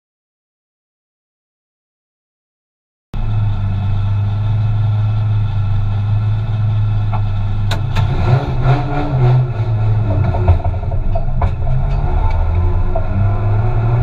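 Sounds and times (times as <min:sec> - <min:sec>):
car engine idling: 0:03.2 - 0:14.0.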